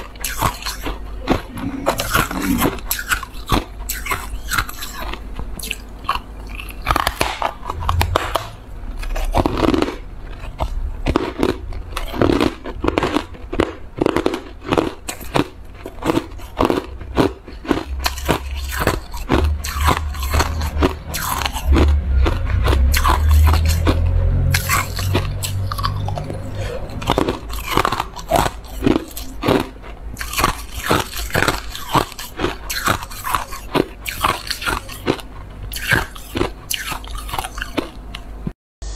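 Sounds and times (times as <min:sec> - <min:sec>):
ice being chewed: 0:00.0 - 0:38.3
deep low rumble: 0:01.4 - 0:02.9, 0:07.6 - 0:12.1, 0:17.8 - 0:29.4.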